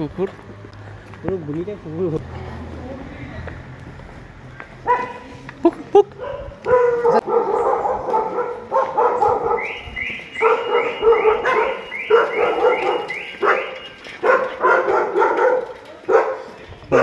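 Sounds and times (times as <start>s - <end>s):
dogs barking: 4.8s - 5.2s, 6.1s - 17.0s.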